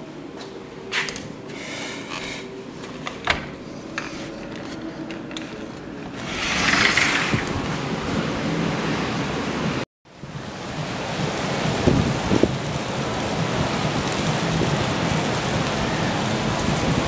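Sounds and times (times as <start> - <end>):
wind: 0.0 - 17.0
sliding door rolling rub: 1.5 - 9.4.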